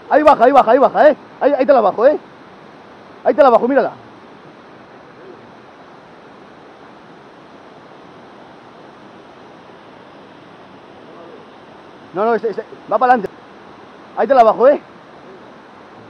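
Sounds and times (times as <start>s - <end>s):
river flowing over weir: 0.0s - 16.0s.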